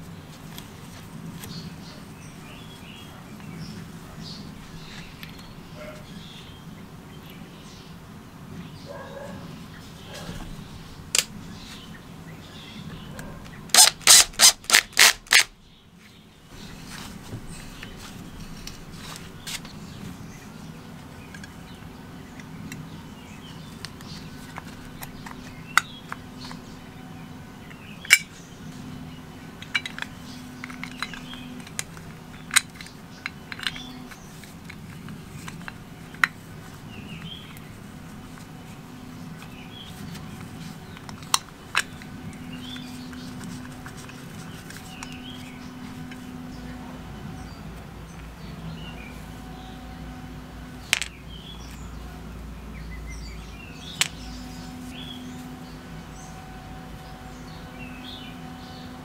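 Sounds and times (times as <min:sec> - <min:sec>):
steady low hum: 0:00.0 - 0:59.0
small parts clicking and tapping: 0:13.7 - 0:15.5, 0:27.7 - 0:28.4, 0:29.6 - 0:36.4, 0:39.4 - 0:45.4, 0:50.8 - 0:51.8, 0:53.8 - 0:54.4.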